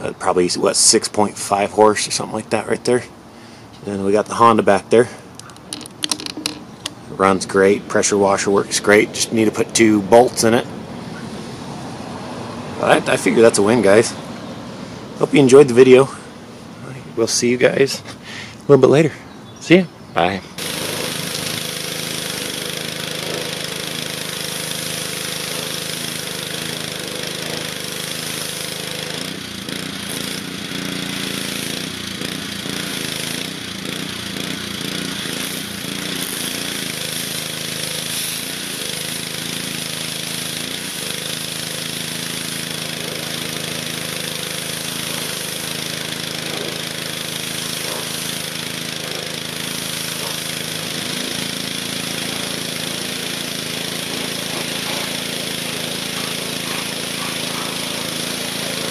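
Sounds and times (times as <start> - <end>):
pressure washer engine humming: 0.0 - 19.4, 20.2 - 58.9
water jet hissing on metal: 35.3 - 58.9.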